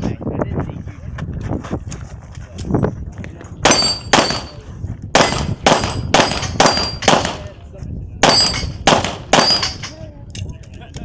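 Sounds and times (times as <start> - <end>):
pistol shots: 3.6 - 7.5, 8.2 - 9.9.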